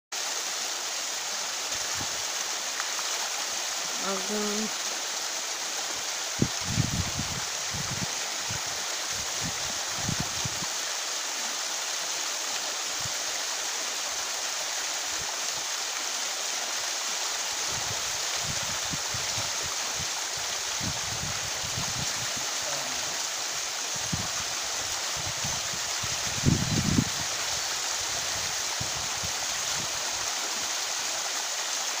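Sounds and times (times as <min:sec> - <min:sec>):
waterfall over rock: 0:00.1 - 0:32.0.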